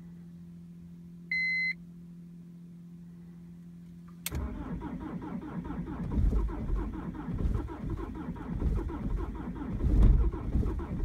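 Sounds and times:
steady low hum: 0.0s - 11.0s
diesel engine cranking and running rough: 4.3s - 11.0s.

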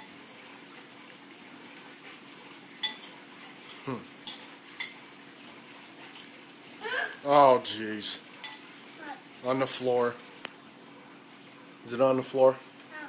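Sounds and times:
spoon clinking on ceramic bowl: 2.8s - 5.0s.

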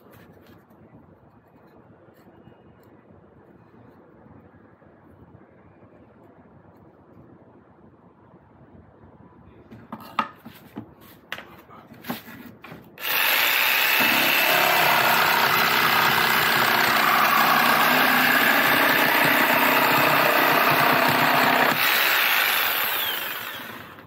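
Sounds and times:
electric jigsaw cutting plywood: 13.0s - 24.0s.

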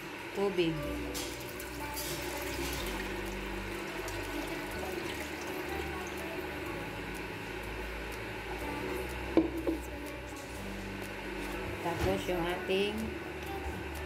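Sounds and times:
water pouring into a pot: 1.3s - 6.3s.

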